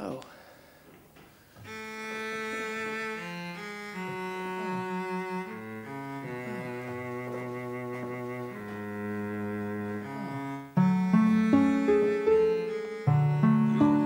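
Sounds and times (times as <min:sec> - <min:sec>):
slow background music with bass: 0:03.5 - 0:14.0.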